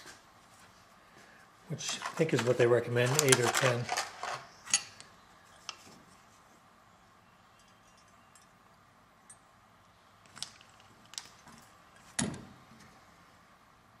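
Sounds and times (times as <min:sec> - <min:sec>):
clinks of wire and hand tools: 0:07.5 - 0:08.6, 0:10.2 - 0:12.9.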